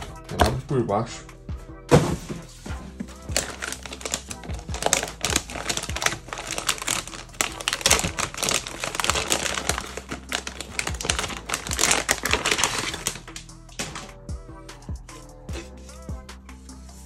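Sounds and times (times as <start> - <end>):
plastic bag crinkling and crackling: 3.3 - 13.4.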